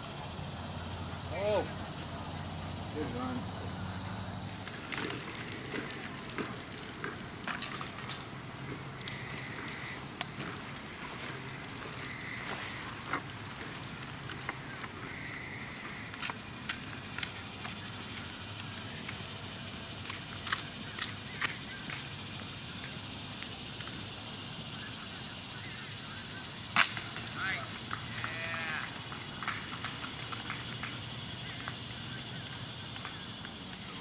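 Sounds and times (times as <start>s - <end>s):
insects hissing: 0.0s - 34.0s
metal chains jangling: 7.5s - 8.4s, 26.8s - 28.1s.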